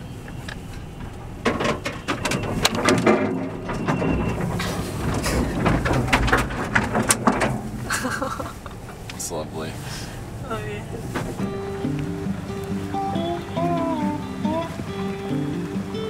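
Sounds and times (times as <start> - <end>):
van body knocking and rattling: 0.0 - 9.2, 10.2 - 12.5
low road rumble: 0.0 - 16.0.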